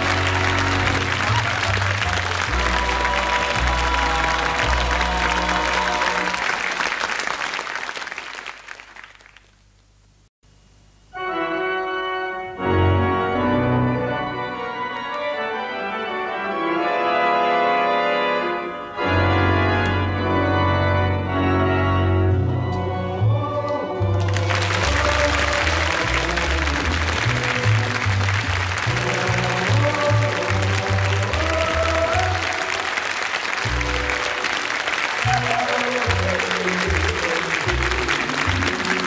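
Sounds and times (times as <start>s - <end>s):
organ playing sustained chords: 0.0s - 6.8s, 11.0s - 39.0s
closing music: 0.0s - 7.1s, 18.2s - 39.0s
audience applause: 0.0s - 9.6s, 24.1s - 39.0s.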